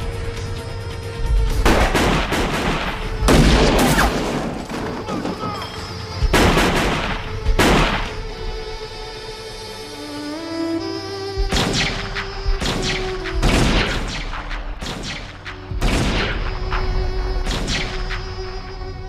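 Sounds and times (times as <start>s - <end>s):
low music score: 0.0s - 19.0s
rapid gunfire bursts: 6.3s - 8.2s, 12.6s - 16.4s.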